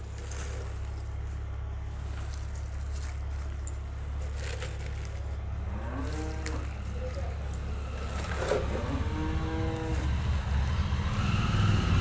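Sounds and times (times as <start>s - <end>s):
spinach leaves rustling: 0.0s - 8.8s
steady low hum: 0.0s - 12.0s
engine revving: 7.4s - 12.0s.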